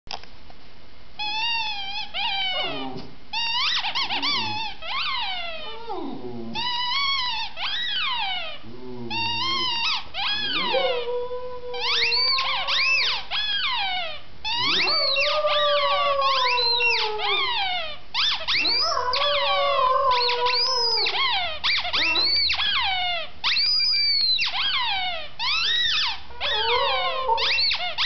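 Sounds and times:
rubber squeaky toy squeaking: 1.2 - 8.6, 9.2 - 11.0, 11.7 - 28.0
dog howling: 2.2 - 3.2, 4.0 - 7.2, 7.8 - 13.2, 13.8 - 23.2, 25.5 - 27.9.

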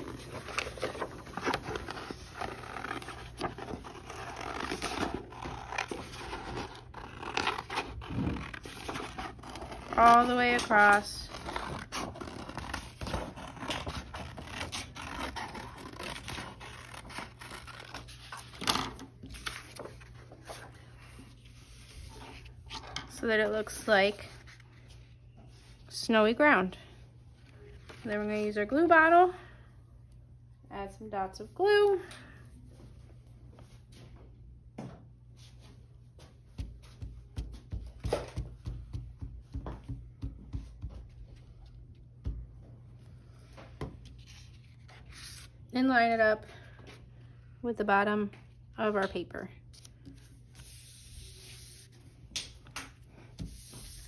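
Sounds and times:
paper rustling: 0.0 - 23.0, 44.0 - 45.6.

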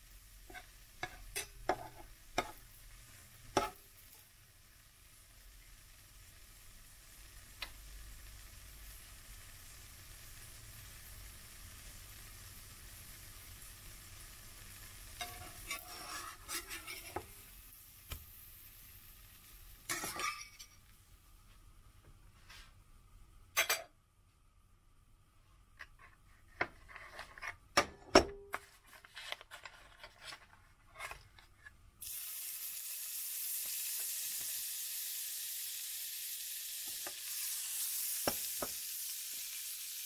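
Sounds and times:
pancake sizzling in a pan: 0.0 - 21.0, 32.0 - 40.0
metal spatula scraping pan: 15.2 - 17.4, 19.9 - 20.8.

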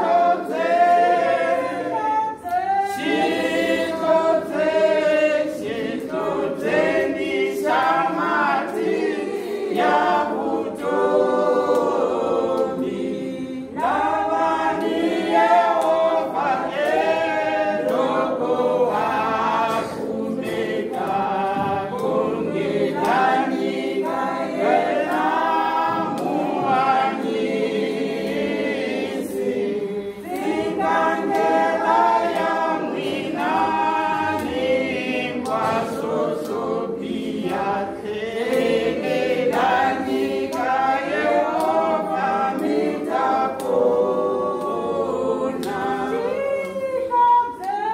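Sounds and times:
women's choir singing a hymn: 0.0 - 47.9.

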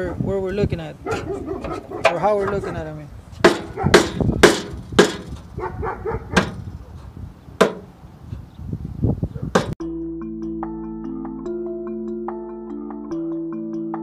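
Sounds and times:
wind rumble on microphone: 0.0 - 9.8
hammer striking metal: 3.4 - 5.4.

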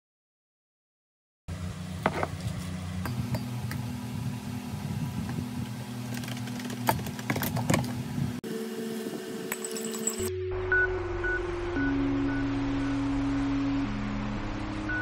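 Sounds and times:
steady low hum: 1.5 - 15.0
glass and spoon clinking on mug: 9.5 - 10.3.

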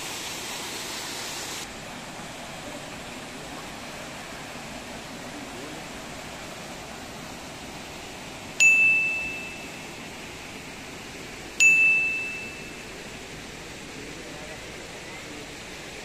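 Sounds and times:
small waterfalls rushing: 0.0 - 16.0
loud bell-like dings: 8.6 - 9.9, 11.6 - 13.0.

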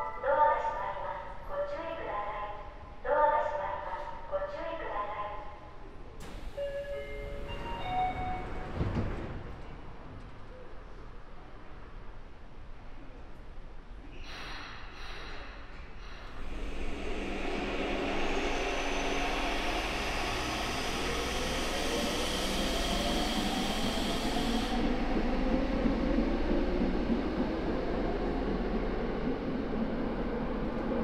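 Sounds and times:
train running noise: 6.2 - 10.6, 14.3 - 31.0
train traction motor whine: 16.3 - 31.0.

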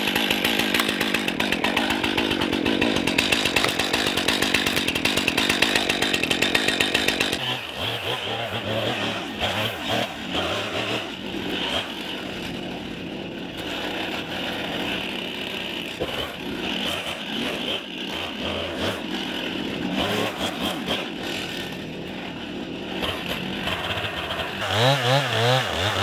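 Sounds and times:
chainsaw revving and cutting: 0.0 - 26.0.

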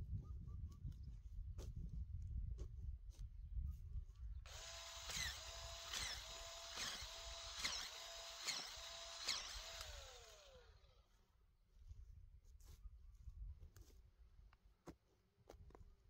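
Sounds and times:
electric drill motor whirring: 4.5 - 11.0.

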